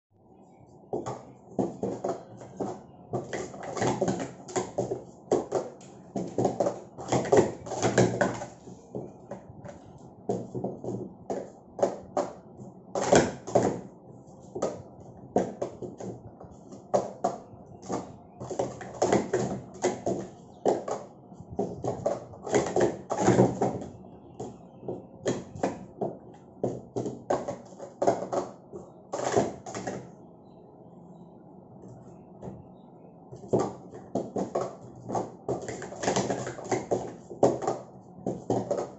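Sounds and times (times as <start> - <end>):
plastic cups clacking: 0.9 - 12.4, 14.5 - 30.1, 33.4 - 38.9.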